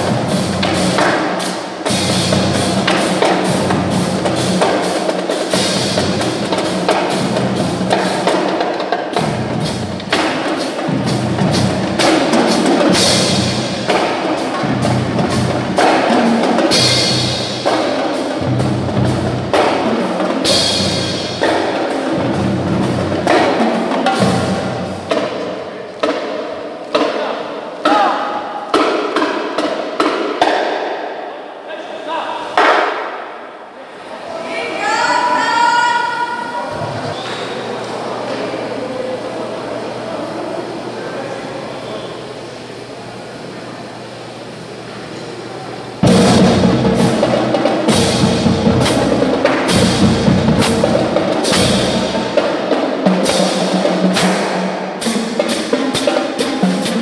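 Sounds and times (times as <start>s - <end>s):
marching percussion band: 0.0s - 31.0s, 46.0s - 57.0s.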